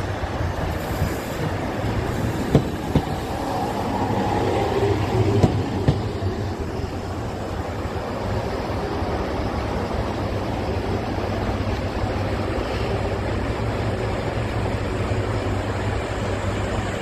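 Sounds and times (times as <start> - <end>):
diesel railcar engine drone: 0.0 - 17.0
rushing noise: 0.0 - 17.0.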